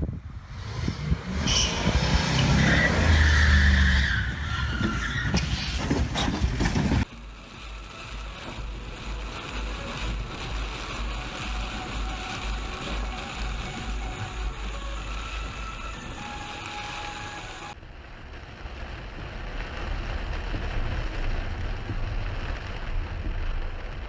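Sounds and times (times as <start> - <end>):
rain and road noise in car: 0.0 - 24.0
tires spinning on grass and dirt: 0.0 - 24.0
truck engine revving: 0.4 - 7.0
tire squeal: 0.5 - 7.0
low regular thumping: 18.8 - 24.0.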